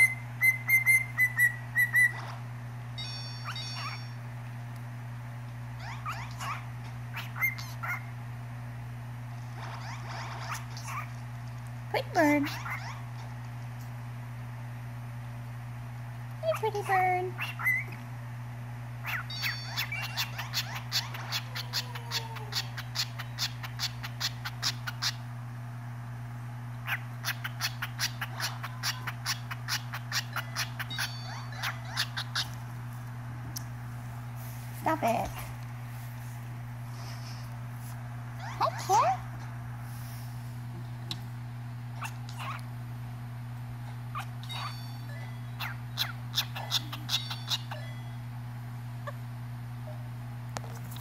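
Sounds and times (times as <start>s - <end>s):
cockatiel chirping: 0.0s - 2.3s, 3.0s - 4.2s, 5.8s - 8.1s, 17.4s - 17.9s, 19.0s - 21.9s, 22.5s - 25.2s, 26.8s - 32.6s, 44.1s - 45.0s, 45.6s - 48.0s.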